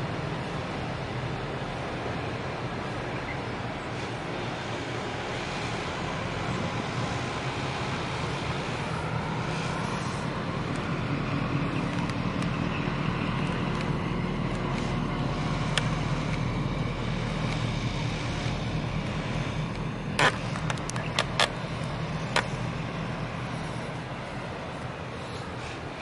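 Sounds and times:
low engine rumble: 0.0 - 26.0
sharp clicks: 18.4 - 22.6.

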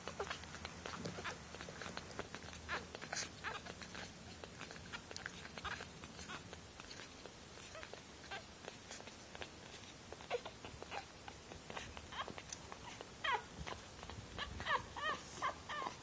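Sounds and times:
puppies suckling: 0.0 - 16.0
puppy squeaks: 0.1 - 16.0.

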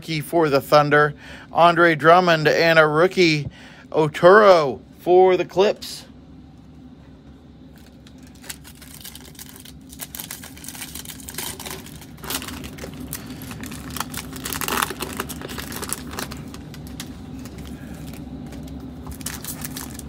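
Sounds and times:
foil wrapper crinkling and tearing: 7.7 - 20.0.

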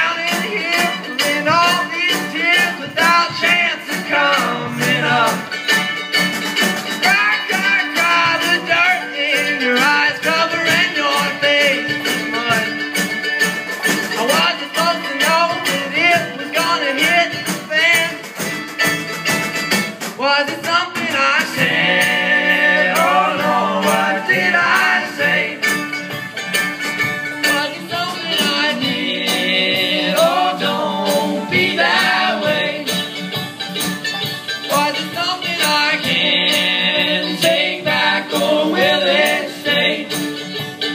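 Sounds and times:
voices singing together: 0.0 - 5.6, 21.1 - 25.9, 27.4 - 33.2, 34.7 - 40.9
string band playing folk tune: 0.0 - 40.9.

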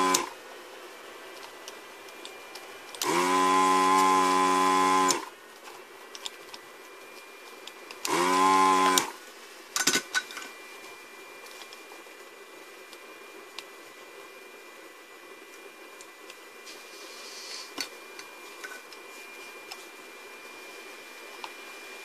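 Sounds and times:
desoldering pump buzzing: 0.0 - 0.6, 1.4 - 5.4, 6.0 - 13.7.

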